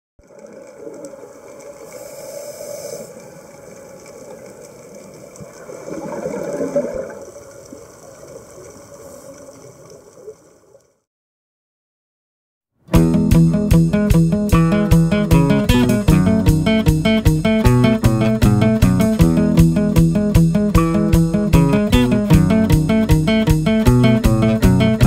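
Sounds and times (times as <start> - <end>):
underwater water and bubbles: 0.2 - 11.0.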